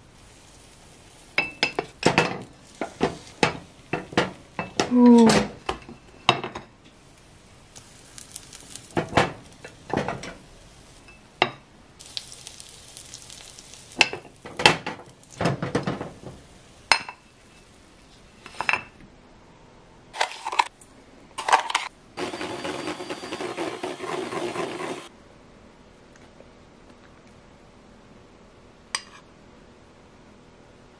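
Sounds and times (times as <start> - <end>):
batter sizzling: 0.0 - 18.7, 21.4 - 25.1
electric hand mixer whipping: 22.2 - 25.1.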